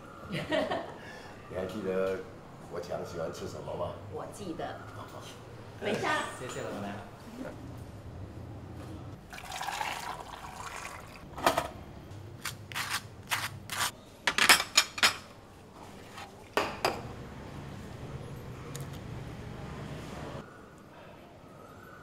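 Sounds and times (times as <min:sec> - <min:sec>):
drink poured into a cup: 0:09.3 - 0:11.2.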